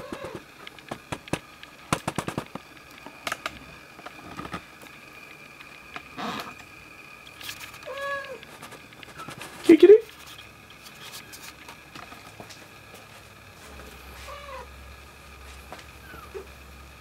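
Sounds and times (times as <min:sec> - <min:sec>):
kitten mewing: 0:00.0 - 0:00.4, 0:07.8 - 0:08.4, 0:14.2 - 0:14.7
cats shifting clicks and rustles: 0:00.0 - 0:06.7, 0:07.3 - 0:13.9.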